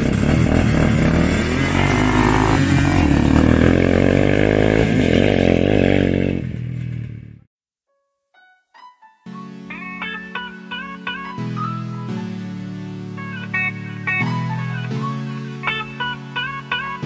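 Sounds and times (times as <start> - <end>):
quad engines revving: 0.0 - 7.4.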